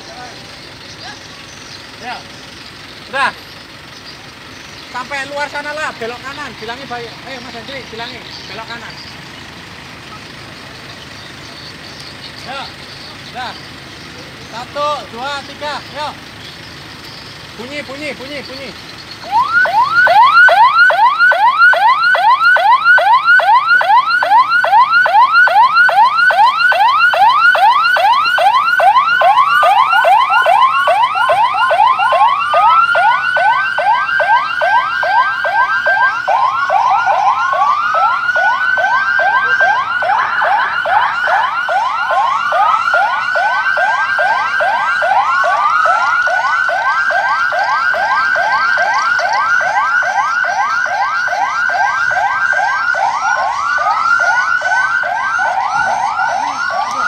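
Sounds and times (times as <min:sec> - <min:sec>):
fast yelping siren: 0:04.9 - 0:09.3, 0:17.5 - 0:57.0
wailing siren: 0:05.0 - 0:13.8, 0:17.4 - 0:57.0.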